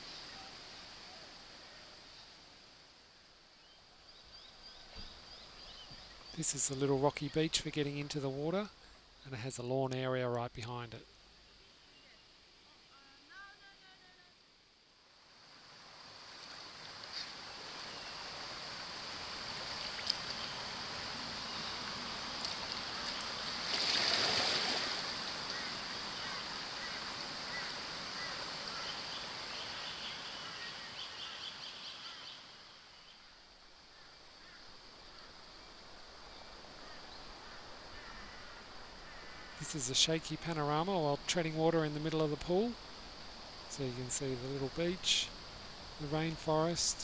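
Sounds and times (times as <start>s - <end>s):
insects droning: 0.0s - 47.0s
water sloshing and splashing: 22.4s - 25.1s.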